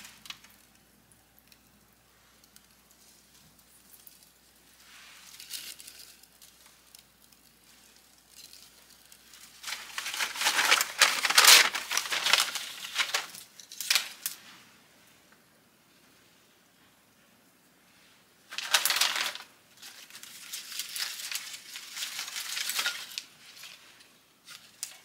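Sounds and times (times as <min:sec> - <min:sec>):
wood fire crackling: 0:00.0 - 0:25.0
faint rustle: 0:02.1 - 0:13.4.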